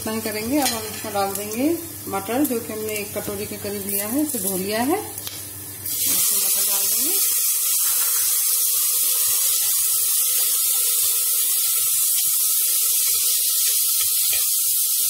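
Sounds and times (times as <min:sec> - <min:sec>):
peas sizzling in hot ghee: 0:00.0 - 0:15.0.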